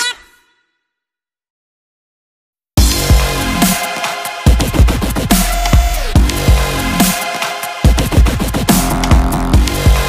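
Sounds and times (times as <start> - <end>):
electronic dance music: 2.8 - 10.0.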